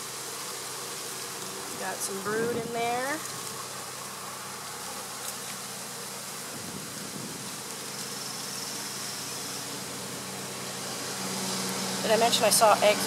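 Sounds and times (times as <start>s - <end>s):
bees buzzing: 0.0s - 13.0s.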